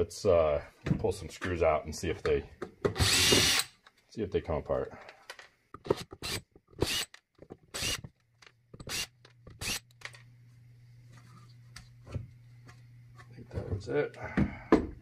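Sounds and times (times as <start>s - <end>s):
cordless drill whirring: 3.0s - 3.7s, 6.2s - 7.1s, 7.7s - 8.0s, 8.8s - 9.8s.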